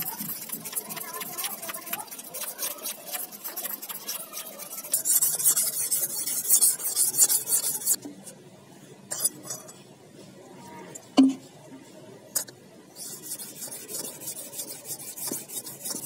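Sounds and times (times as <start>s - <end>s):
knife scraping on sharpening stone: 0.0s - 8.0s.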